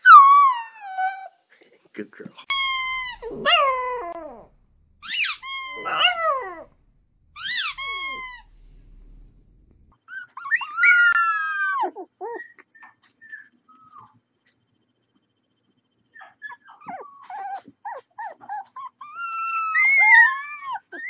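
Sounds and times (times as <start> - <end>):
puppy whining: 0.0 - 1.4, 2.4 - 14.6, 15.7 - 21.0
puppy yipping: 0.0 - 1.4, 2.5 - 6.8, 7.4 - 8.6, 10.0 - 14.2, 15.9 - 21.0.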